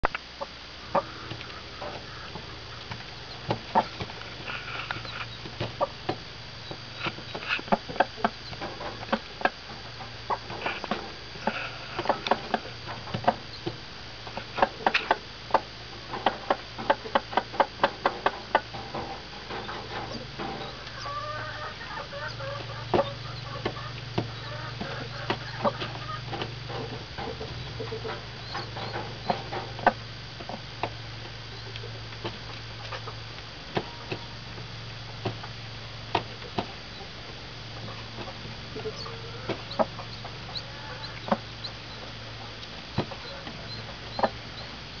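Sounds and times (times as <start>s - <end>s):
chicks peeping: 0.3s - 34.4s, 36.1s - 45.0s
hen clucking: 0.4s - 6.0s, 6.6s - 13.8s, 16.3s - 30.1s, 37.8s - 44.8s.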